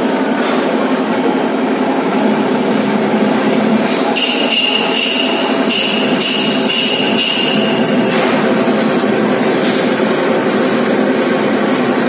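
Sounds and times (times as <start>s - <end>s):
metal lathe running: 1.5s - 12.0s
high metallic ringing: 2.4s - 12.0s.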